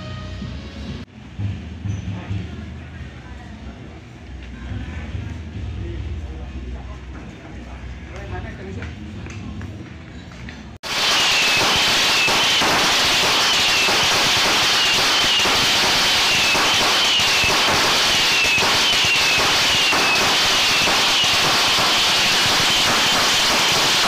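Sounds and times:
firecrackers crackling: 10.8 - 24.0.

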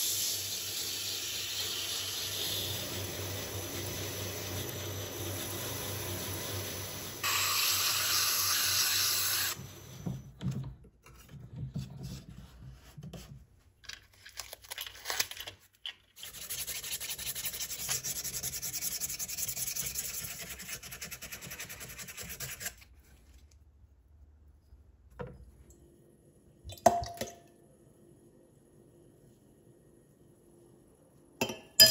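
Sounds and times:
sandpaper rubbing wood: 16.3 - 22.8.

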